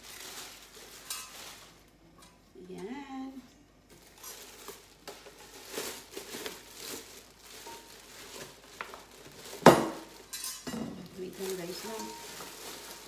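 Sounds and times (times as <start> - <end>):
plastic bag crinkling: 0.0 - 2.0, 3.8 - 13.0.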